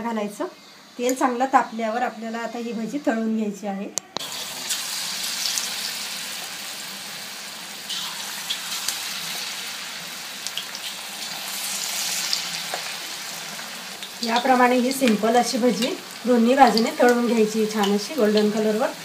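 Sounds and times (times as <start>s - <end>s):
batter deep-frying in hot oil: 4.2s - 19.0s.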